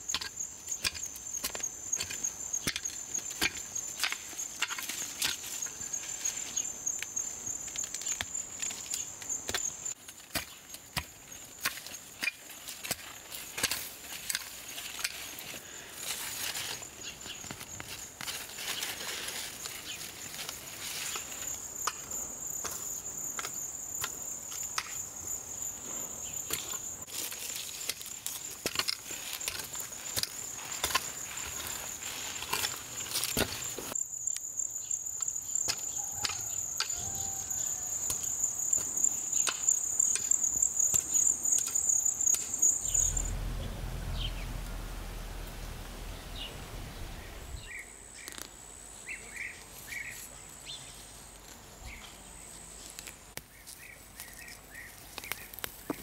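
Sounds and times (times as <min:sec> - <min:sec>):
hoe chopping and scraping soil: 0:00.0 - 0:06.6, 0:07.7 - 0:17.4, 0:26.5 - 0:34.0
high-pitched insect trill: 0:33.6 - 0:48.4.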